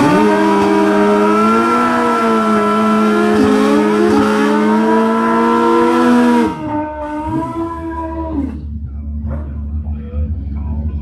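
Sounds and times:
racing engines revving high: 0:00.0 - 0:09.6.

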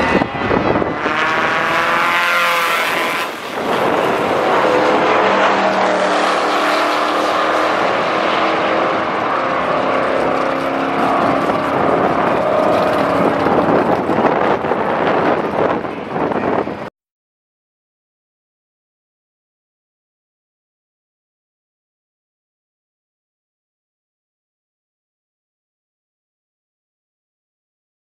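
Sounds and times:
drag race cars accelerating: 0:00.0 - 0:16.9.

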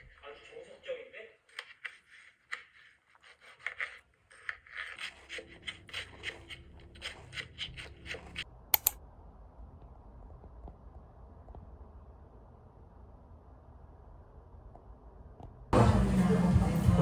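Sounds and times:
sharp clicks: 0:08.7 - 0:09.0.

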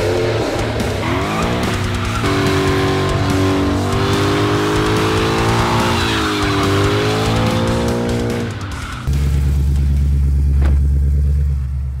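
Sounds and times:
car tyres squealing: 0:00.0 - 0:09.1
music: 0:00.0 - 0:11.3.

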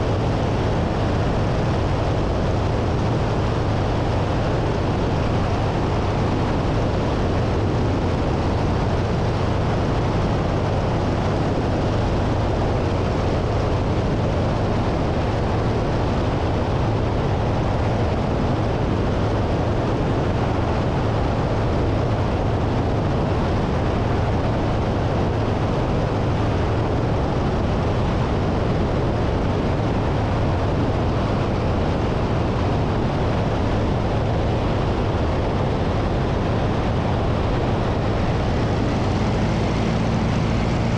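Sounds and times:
plane engine and propeller droning: 0:00.0 - 0:40.9
wind rush on microphone: 0:00.0 - 0:40.9
low hum: 0:21.7 - 0:40.9.

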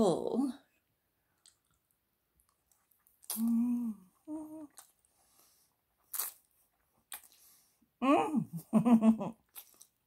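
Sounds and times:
wet mouth clicks: 0:01.4 - 0:03.6, 0:07.1 - 0:07.4, 0:09.5 - 0:10.0
closed-mouth hums: 0:03.2 - 0:04.9.

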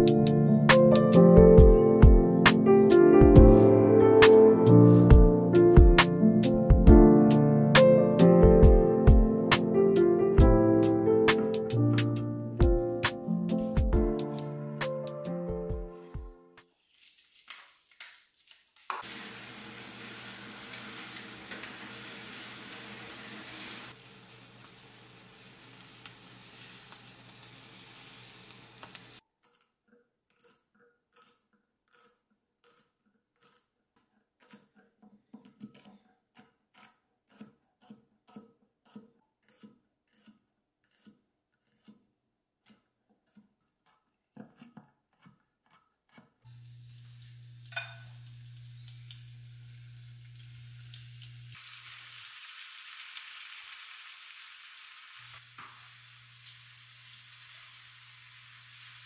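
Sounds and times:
chicken sizzling in a frying pan: 0:19.0 - 0:29.2, 0:46.5 - 0:59.0.

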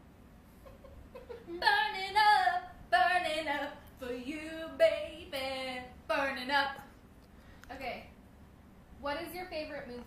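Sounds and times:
young woman singing: 0:01.4 - 0:06.9.

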